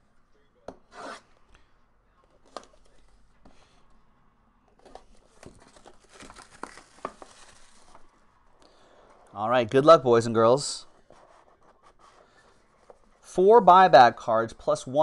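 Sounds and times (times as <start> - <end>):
plastic wrap crinkling and tearing: 5.4 - 8.2.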